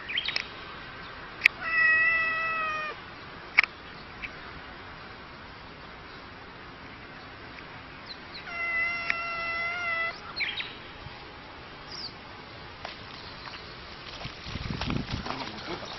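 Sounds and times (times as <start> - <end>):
cat threat yowl: 1.6 - 3.0, 8.4 - 10.2
short high cat cries: 1.6 - 3.0, 8.4 - 10.2.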